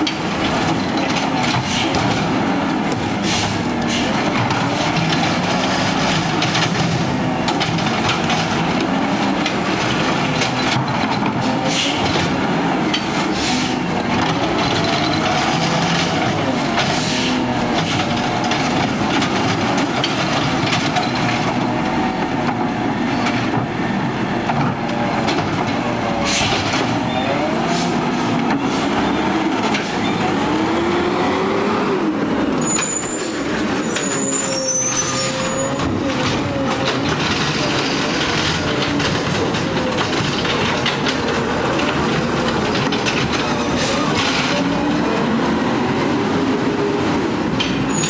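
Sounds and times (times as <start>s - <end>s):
knocks of carts and hydraulic arm: 0.0s - 30.5s, 35.1s - 44.9s
garbage truck diesel engine revving: 0.0s - 48.0s
high squeal: 32.6s - 36.1s.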